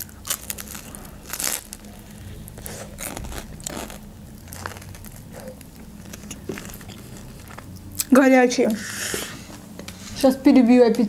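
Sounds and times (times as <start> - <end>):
crunchy pastry chewing: 0.0 - 8.2.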